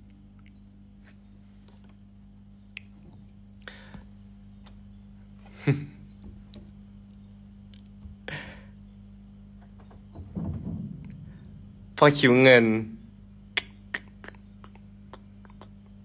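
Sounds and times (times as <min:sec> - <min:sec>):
low steady hum: 0:00.0 - 0:16.0
breathy bursts: 0:03.6 - 0:04.0, 0:08.3 - 0:08.8.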